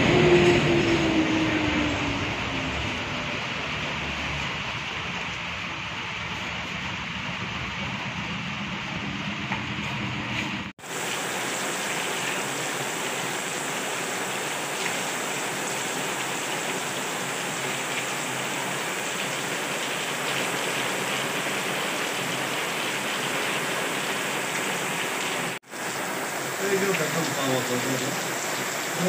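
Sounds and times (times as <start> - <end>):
heavy rain on wet ground: 0.0 - 9.2, 10.8 - 29.0
street traffic: 0.0 - 10.7.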